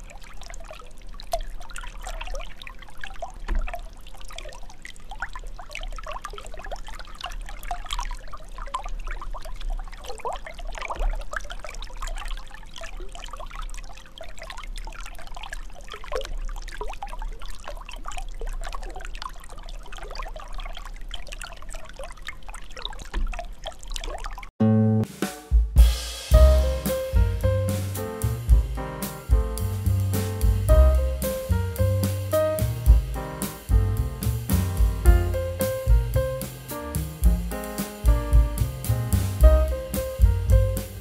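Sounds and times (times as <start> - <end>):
splash: 0.0 - 24.5
water sloshing and trickling: 0.0 - 24.5
low steady rumble: 26.3 - 41.0.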